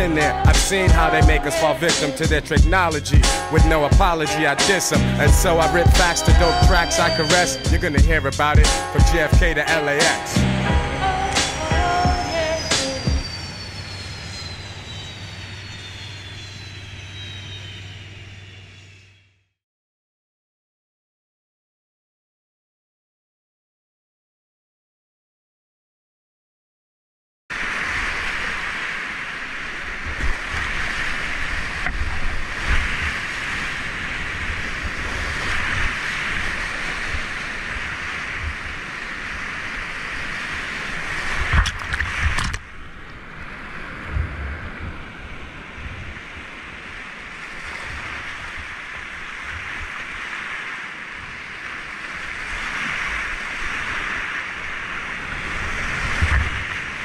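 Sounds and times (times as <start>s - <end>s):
whitewater rushing: 0.0s - 14.8s
wind rumble on microphone: 27.6s - 57.0s.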